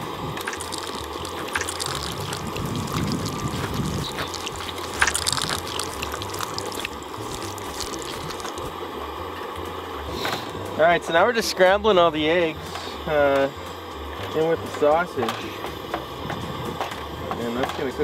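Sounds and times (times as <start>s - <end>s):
eggs cracking: 0.0s - 8.7s
fat sizzling in a frying pan: 0.0s - 8.8s.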